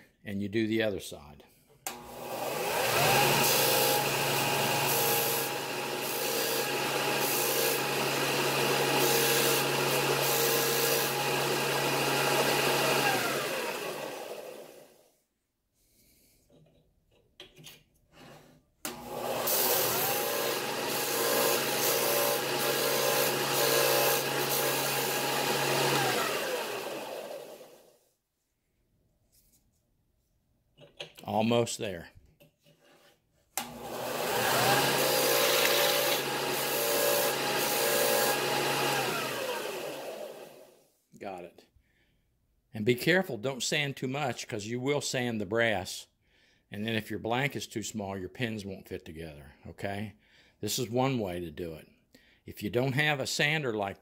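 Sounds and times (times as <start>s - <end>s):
disc sander running: 1.9s - 14.8s, 18.9s - 27.8s, 33.6s - 40.7s.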